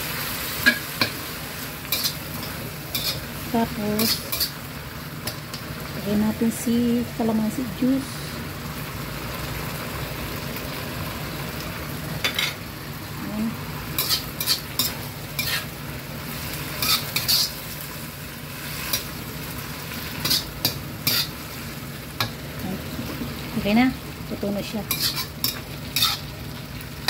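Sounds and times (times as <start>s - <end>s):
food sizzling in a wok: 0.0s - 27.0s
spatula scraping a pan: 1.9s - 4.6s, 14.0s - 15.7s, 16.4s - 17.8s, 20.2s - 21.6s, 24.9s - 26.3s.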